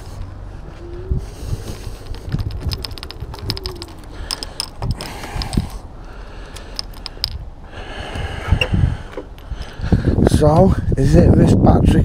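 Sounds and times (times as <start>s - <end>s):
mechanical clicking and rattling: 1.8s - 7.4s.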